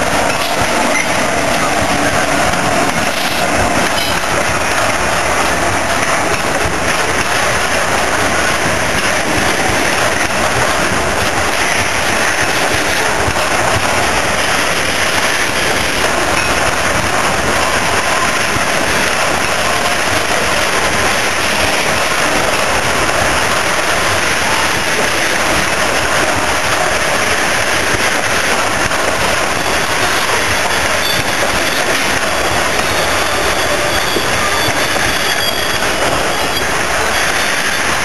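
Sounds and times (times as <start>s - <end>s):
train wheels rushing on rail: 0.0s - 38.0s.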